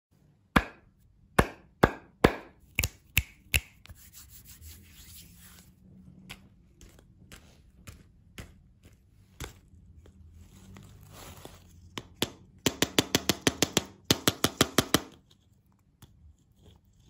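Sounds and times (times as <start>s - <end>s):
soft rubbing: 3.8s - 12.0s
hands tapping: 11.9s - 15.2s.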